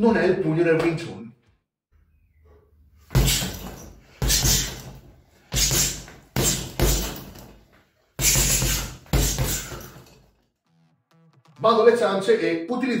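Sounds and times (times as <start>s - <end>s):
gloved punches thudding: 3.1s - 10.2s.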